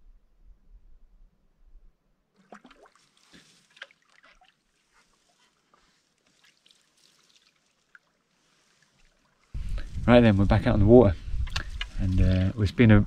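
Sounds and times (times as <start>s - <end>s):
water trickling and dripping: 2.4s - 9.6s.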